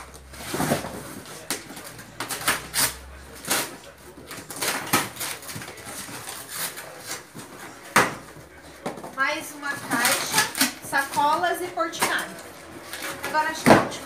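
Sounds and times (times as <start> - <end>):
cardboard boxes being rummaged: 0.0 - 3.5
rustling packaging: 0.0 - 14.0.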